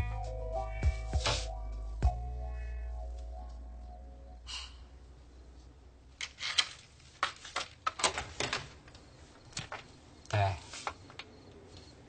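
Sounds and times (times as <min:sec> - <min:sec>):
music cue: 0:00.0 - 0:04.5
person breathing: 0:04.4 - 0:05.0.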